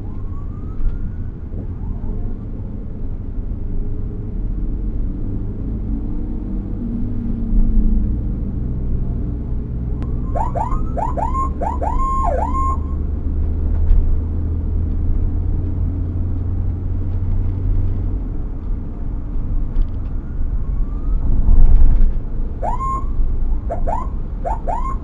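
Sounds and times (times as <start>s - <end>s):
emergency vehicle siren whooping: 0.0s - 2.4s, 10.0s - 13.1s, 20.0s - 21.9s, 22.6s - 25.0s
road noise: 0.0s - 25.0s
vehicle engine drone: 0.0s - 25.0s.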